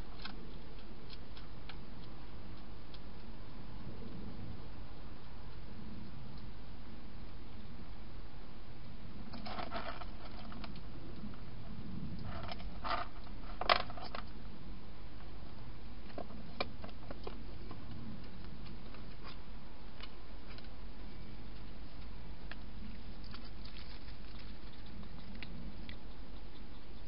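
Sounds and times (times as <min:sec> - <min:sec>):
low hum and hiss: 0:00.0 - 0:27.0.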